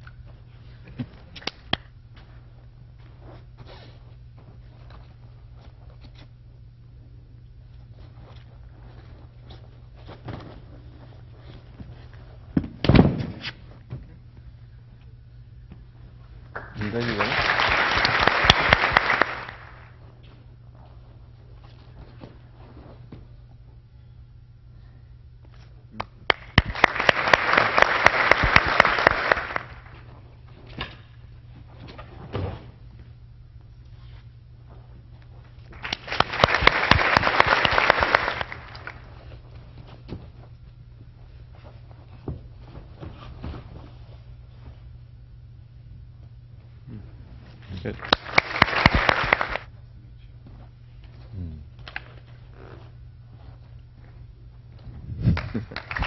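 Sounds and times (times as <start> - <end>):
audience applauding: 16.6 - 19.9, 26.3 - 30.0, 35.8 - 39.0, 47.9 - 49.7, 55.4 - 56.0.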